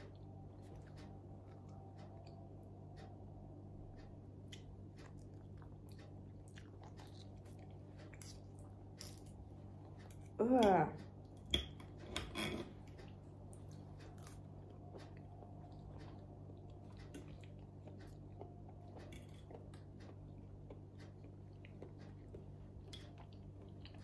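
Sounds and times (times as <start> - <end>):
soft chewing: 0.0 - 24.0
steady low hum: 0.0 - 24.0
cutlery clicking on a plate: 11.4 - 12.8.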